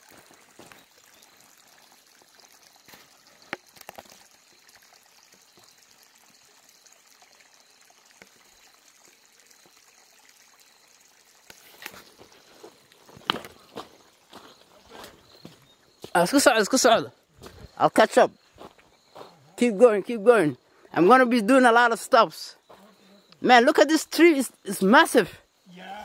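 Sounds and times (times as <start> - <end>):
stream trickling over stones: 0.0 - 26.0.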